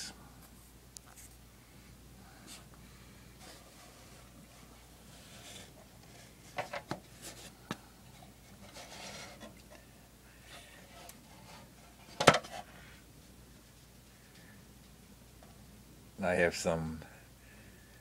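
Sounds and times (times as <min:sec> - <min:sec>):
soft rubbing: 0:03.4 - 0:06.5.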